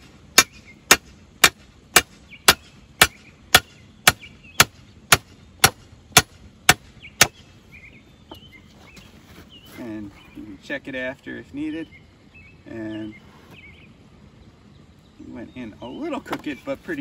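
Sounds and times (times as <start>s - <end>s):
hammer striking metal stake: 0.0s - 7.4s.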